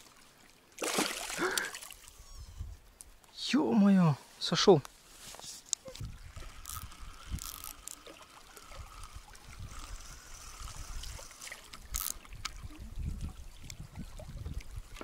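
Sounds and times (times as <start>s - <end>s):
water trickling and splashing: 0.0s - 2.4s, 5.8s - 15.0s
wind rumble on microphone: 5.9s - 7.7s, 8.8s - 15.0s.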